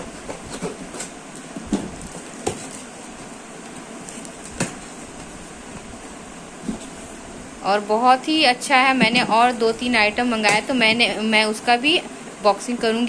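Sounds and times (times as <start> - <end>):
background hiss: 0.0 - 13.0
cardboard knocks and scrapes: 0.1 - 3.3.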